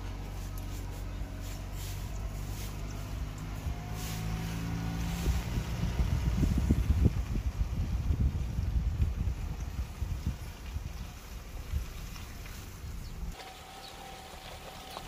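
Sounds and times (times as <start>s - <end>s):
low motor hum: 0.0s - 15.0s
wind buffeting microphone: 0.1s - 13.4s.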